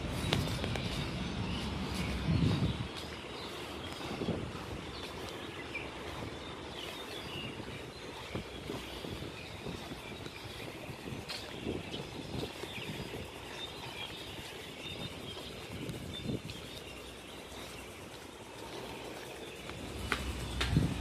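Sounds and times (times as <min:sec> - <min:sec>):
background hum: 0:00.0 - 0:21.0
bird chirps: 0:00.0 - 0:21.0
footsteps on stone paving: 0:00.0 - 0:21.0
low rumble: 0:19.6 - 0:21.0.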